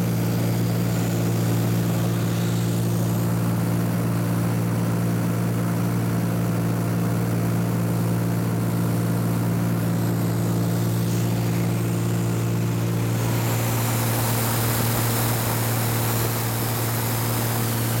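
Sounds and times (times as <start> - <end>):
rushing air hiss: 0.0 - 3.8, 9.8 - 18.0
light aircraft engine droning: 0.0 - 18.0.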